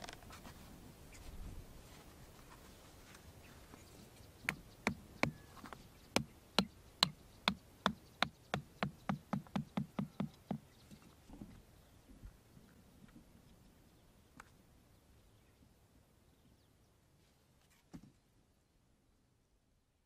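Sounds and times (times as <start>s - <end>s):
hammer knocking wooden stake: 4.5s - 5.4s, 6.2s - 10.6s.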